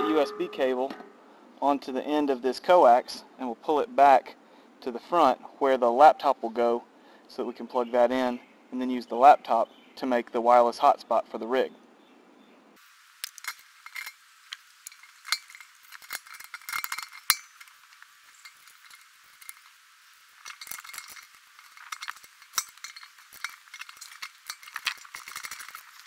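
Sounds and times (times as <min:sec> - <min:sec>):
plastic parts clicking and rattling: 0:13.2 - 0:19.8, 0:20.4 - 0:26.0.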